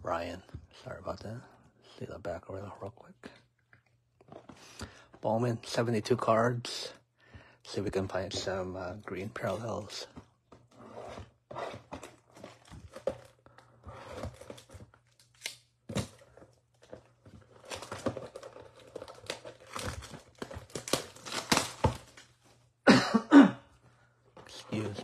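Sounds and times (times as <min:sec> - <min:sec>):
plastic wrapper tearing and crinkling: 0:14.2 - 0:16.2, 0:16.8 - 0:22.4.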